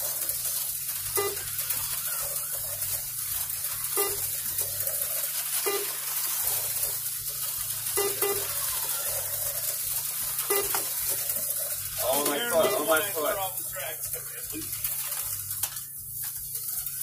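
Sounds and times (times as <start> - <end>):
slot car motors whirring: 0.0 - 17.0
lap counter beeps: 1.1 - 1.6, 3.9 - 4.4, 5.5 - 6.1, 7.9 - 8.6, 10.4 - 11.0, 12.5 - 13.3.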